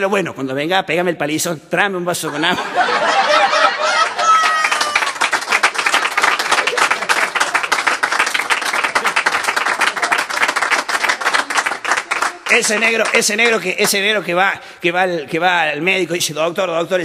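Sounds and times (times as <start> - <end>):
audience applauding: 3.1 - 14.1.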